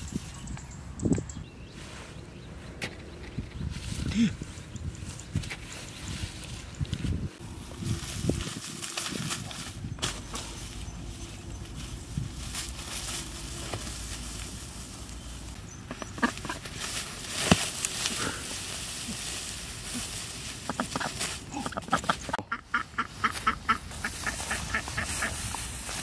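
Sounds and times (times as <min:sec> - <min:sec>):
rustle of dry straw: 0:00.0 - 0:00.5, 0:01.6 - 0:02.7, 0:03.4 - 0:26.0
duck quacking: 0:20.7 - 0:25.4.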